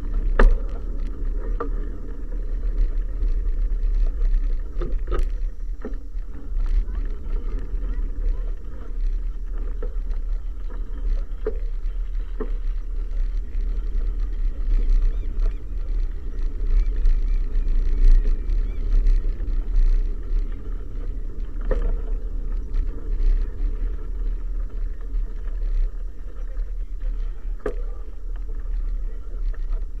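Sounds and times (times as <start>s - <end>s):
tyres rolling on road: 0.0s - 30.0s
wind buffeting microphone: 0.0s - 30.0s.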